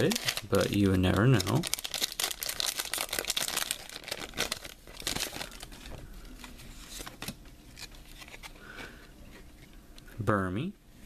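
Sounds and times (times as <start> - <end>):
foil wrapper crinkling and tearing: 0.0 - 6.0.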